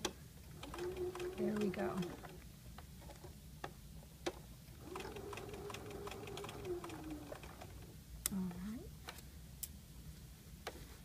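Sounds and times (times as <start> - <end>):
sewing machine stitching: 0.6 - 2.4, 4.8 - 7.8.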